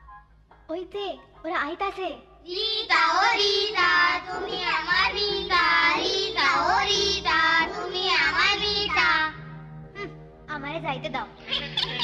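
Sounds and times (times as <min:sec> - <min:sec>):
children singing: 0:02.5 - 0:09.4
instrumental backing music: 0:02.6 - 0:12.0.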